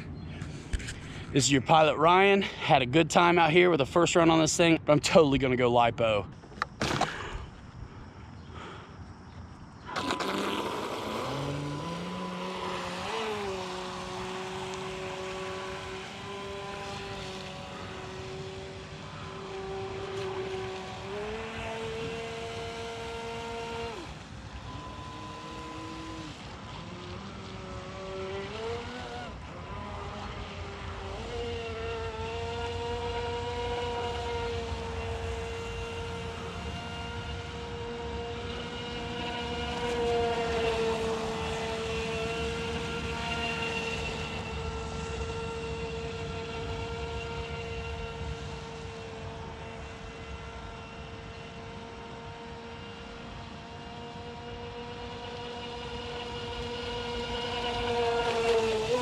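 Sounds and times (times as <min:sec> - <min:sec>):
electric motor whining: 0:09.7 - 0:59.0.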